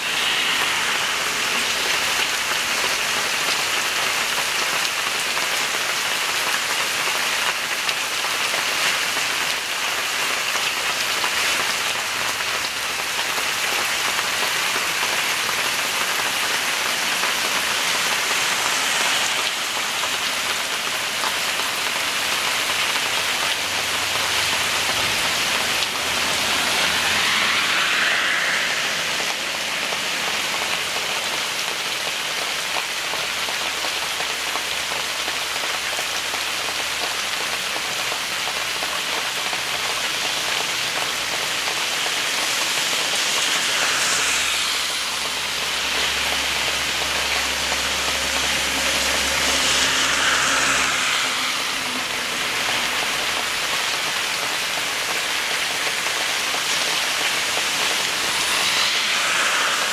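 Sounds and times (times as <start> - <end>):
heavy rain pouring: 0.0 - 59.9.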